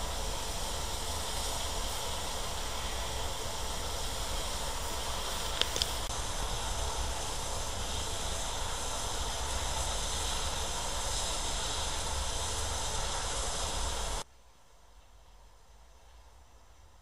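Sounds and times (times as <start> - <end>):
steam hissing from locomotive: 0.0 - 14.3.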